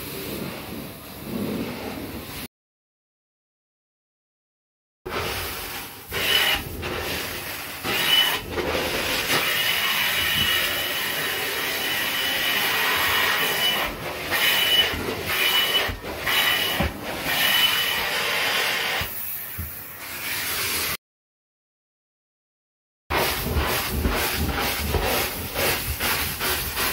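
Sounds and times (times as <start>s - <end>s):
carpet extractor suction hiss: 5.1s - 21.0s, 23.2s - 26.9s
whistling suction tone: 9.6s - 21.0s.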